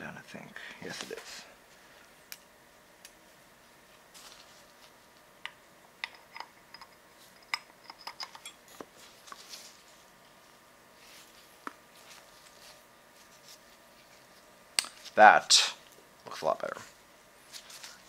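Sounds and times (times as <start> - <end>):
gloves and cloth rustling: 3.6 - 5.3, 8.8 - 15.2, 16.8 - 18.0.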